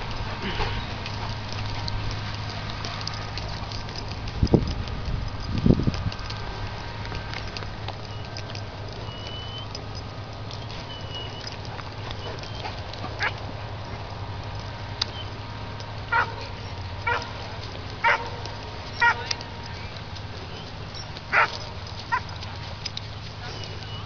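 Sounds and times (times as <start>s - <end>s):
steady low rumble: 0.0s - 24.0s
dog barking: 16.1s - 17.2s, 18.0s - 18.4s, 19.0s - 19.3s, 21.3s - 22.3s.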